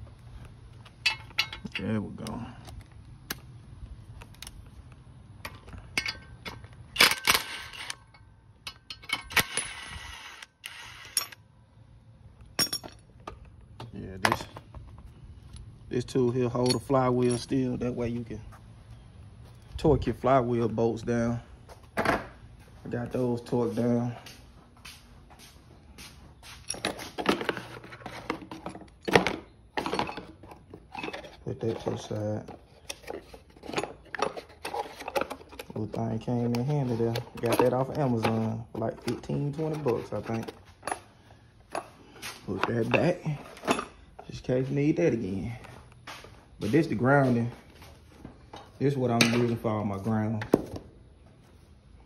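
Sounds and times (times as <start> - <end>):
metal tools clinking and clanking: 0.9 - 2.4, 5.4 - 10.0, 11.0 - 11.4, 12.5 - 13.5, 16.3 - 17.9, 26.6 - 44.6
metal hand tools clanking: 1.0 - 2.1, 5.5 - 9.7, 16.5 - 17.5.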